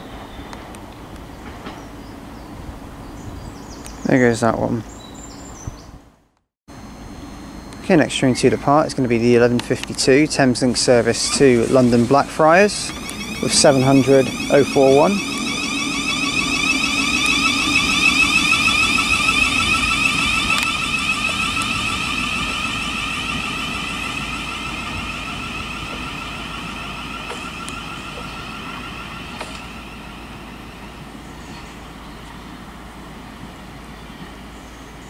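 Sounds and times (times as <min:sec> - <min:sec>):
electric train whining: 0:06.7 - 0:33.9.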